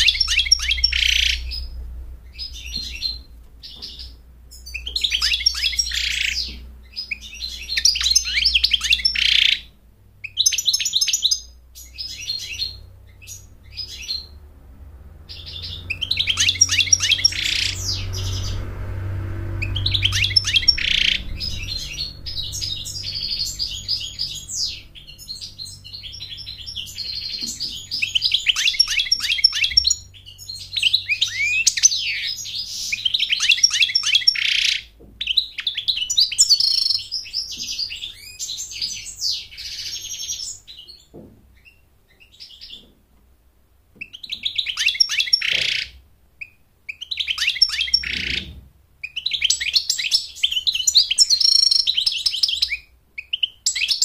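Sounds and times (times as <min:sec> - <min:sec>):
goldfinch twittering song: 0:00.0 - 0:14.4, 0:15.3 - 0:18.7, 0:19.5 - 0:41.0, 0:44.0 - 0:54.0.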